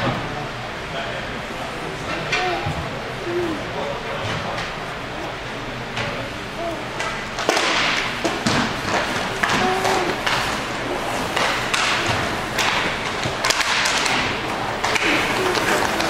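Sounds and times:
hockey sticks and puck clacking: 7.0 - 16.0
skates scraping on ice: 8.4 - 16.0.

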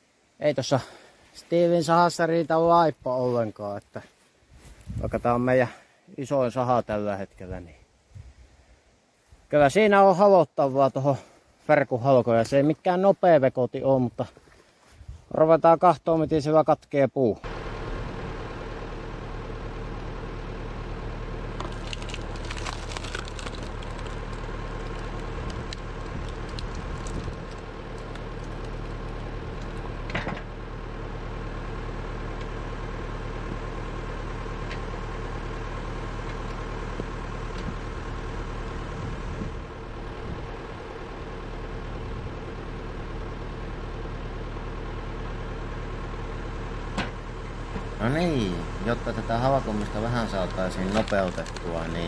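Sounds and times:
tractor engine running: 17.4 - 52.0
wood cracking: 21.5 - 30.3, 49.0 - 52.0.

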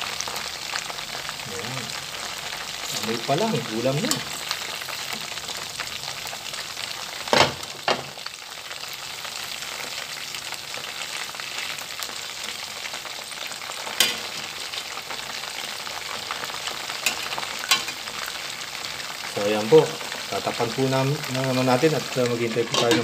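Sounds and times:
chicken frying in hot oil: 0.0 - 23.0
metal tongs clinking on pot: 4.0 - 4.5, 17.0 - 18.0, 22.4 - 23.0.

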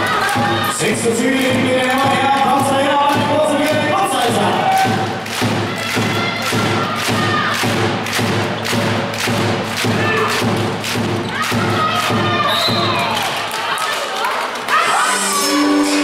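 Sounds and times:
steady thumping beat: 0.0 - 13.4.

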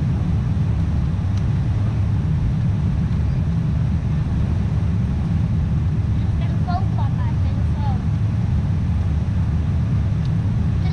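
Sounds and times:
rushing air: 0.0 - 7.0
jet engines at climb power: 0.0 - 10.9.

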